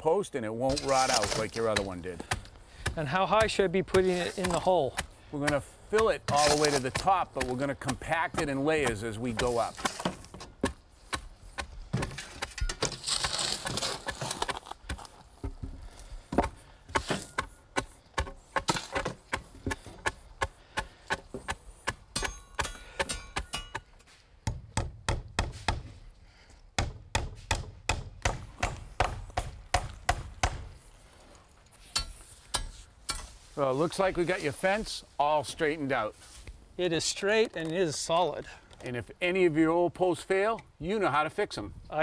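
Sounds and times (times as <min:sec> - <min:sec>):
stone being shovelled: 0:00.7 - 0:10.3, 0:12.1 - 0:14.7.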